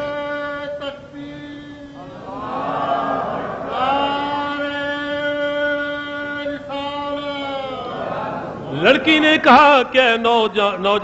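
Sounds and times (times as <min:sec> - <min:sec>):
man chanting melodically: 0:00.0 - 0:02.4, 0:03.4 - 0:11.0.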